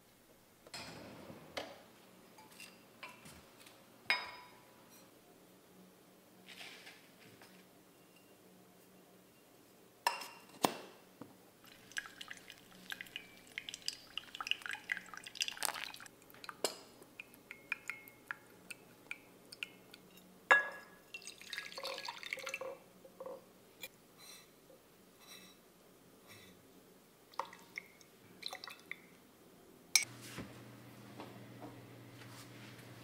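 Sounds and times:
coffee dripping: 0:11.6 - 0:22.8, 0:27.3 - 0:29.1.

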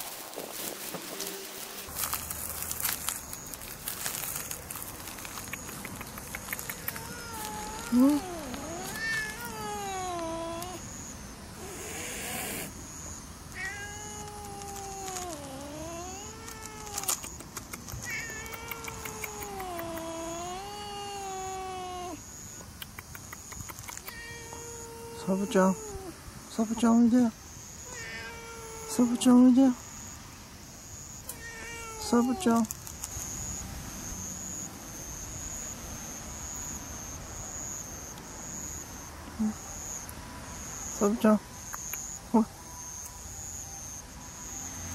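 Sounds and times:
insect trilling in pulses: 0:05.6 - 0:17.4
cat yowling: 0:06.6 - 0:10.8, 0:13.5 - 0:17.2, 0:18.0 - 0:22.2, 0:24.0 - 0:26.2, 0:27.8 - 0:29.5, 0:31.2 - 0:32.8.

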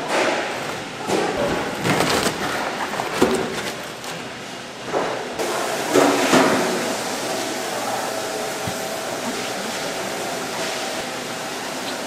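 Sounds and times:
wet cabbages tumbling onto table: 0:00.1 - 0:04.3.

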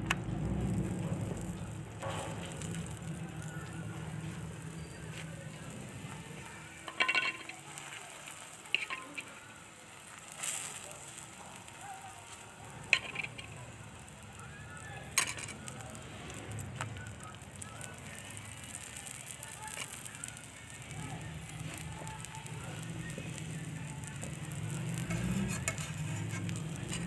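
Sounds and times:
food sizzling in pan: 0:00.0 - 0:27.0
utensil clinking and scraping pan: 0:02.0 - 0:11.7, 0:12.3 - 0:13.8, 0:15.1 - 0:15.7, 0:24.2 - 0:27.0.

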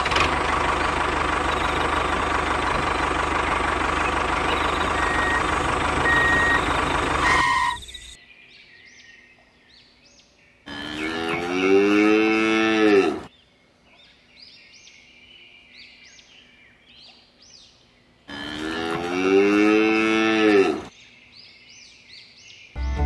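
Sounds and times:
faint high chirps: 0:02.9 - 0:08.2
cow mooing: 0:10.7 - 0:13.3, 0:18.3 - 0:20.9.

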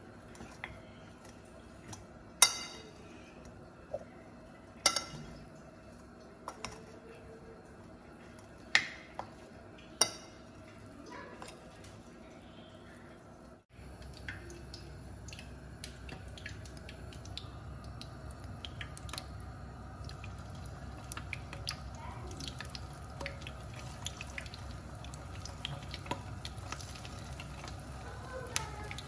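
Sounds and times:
hot oil crackling in frying pan: 0:13.8 - 0:29.0.

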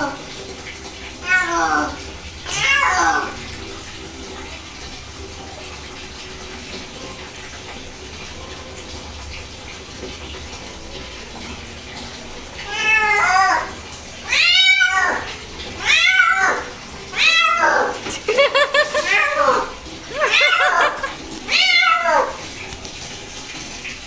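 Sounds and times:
cat meowing loudly: 0:12.7 - 0:18.0, 0:20.3 - 0:22.4.

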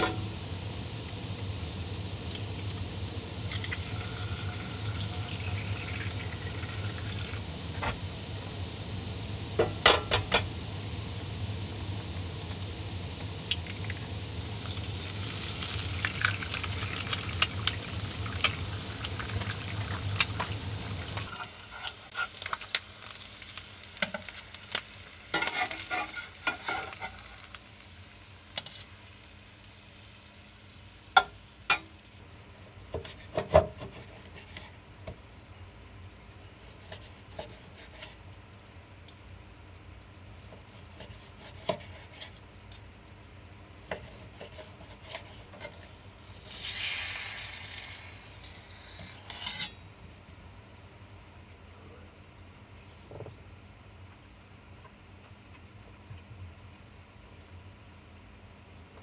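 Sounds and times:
egg sizzling in a skillet: 0:00.0 - 0:50.0
spatula scraping a pan: 0:21.2 - 0:22.6, 0:25.3 - 0:27.6, 0:32.9 - 0:34.8, 0:36.5 - 0:38.2, 0:40.7 - 0:42.4, 0:43.9 - 0:47.0, 0:48.7 - 0:49.8.

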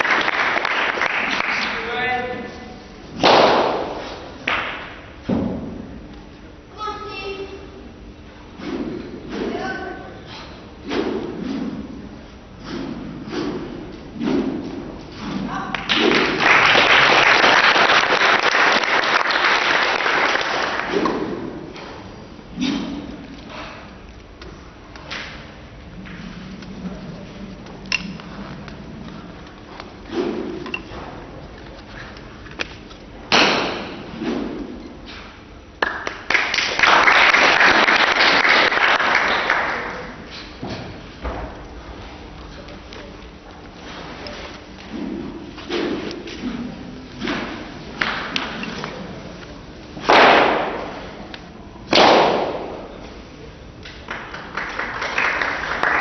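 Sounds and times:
applause: 0:00.0 - 0:02.0, 0:15.8 - 0:20.9, 0:35.8 - 0:40.2, 0:54.0 - 0:56.0
wooden staff thudding: 0:03.2 - 0:04.1, 0:33.3 - 0:34.8, 0:50.0 - 0:51.1.

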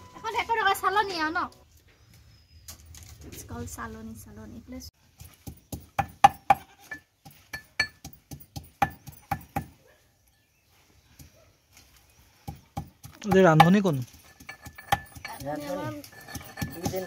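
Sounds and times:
pestle clinking in mortar: 0:05.6 - 0:09.7, 0:12.8 - 0:17.0.

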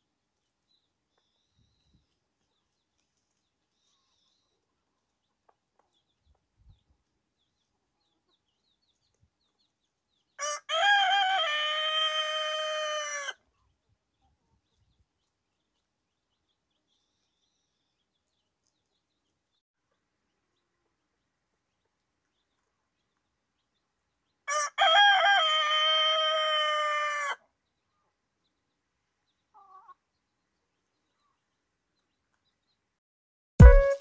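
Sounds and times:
rooster crowing: 0:10.4 - 0:13.4, 0:24.5 - 0:27.4.

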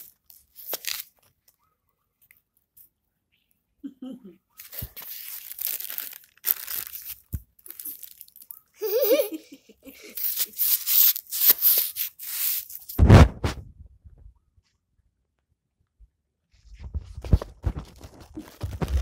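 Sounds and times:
plastic bag crinkling: 0:00.0 - 0:01.3, 0:04.6 - 0:08.7, 0:17.3 - 0:19.0.

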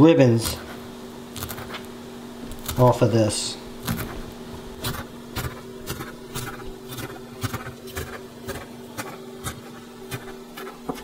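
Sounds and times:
steady low hum: 0:00.0 - 0:11.0
knife chopping on cutting board: 0:03.8 - 0:04.2, 0:04.8 - 0:11.0.

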